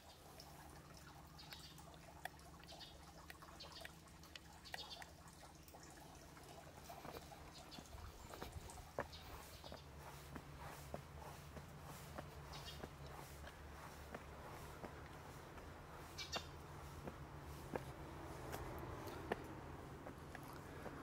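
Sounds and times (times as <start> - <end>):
footsteps on stone steps: 6.8 - 21.0.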